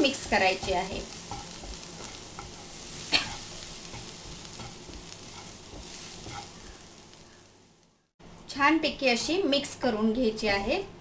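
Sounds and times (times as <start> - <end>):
spatula scraping a frying pan: 0.0 - 7.5
oil sizzling softly: 0.0 - 8.1.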